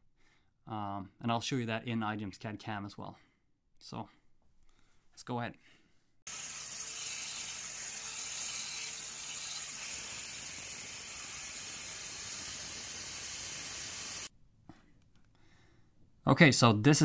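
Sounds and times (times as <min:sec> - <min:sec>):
waterjet cutter hissing: 0:06.3 - 0:14.3.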